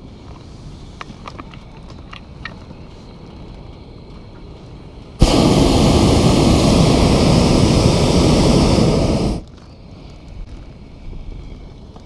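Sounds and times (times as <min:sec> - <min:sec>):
propane burner flame rushing: 0:05.2 - 0:09.5.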